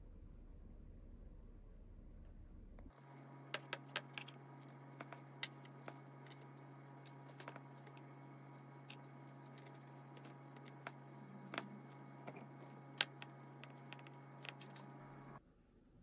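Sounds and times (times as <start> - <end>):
low hum: 0.0 - 16.0
chopsticks clicking on wood: 9.6 - 14.9.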